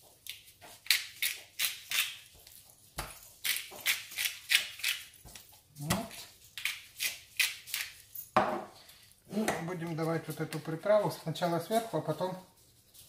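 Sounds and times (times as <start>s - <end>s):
pepper mill grinding: 3.4s - 5.2s, 5.8s - 8.1s.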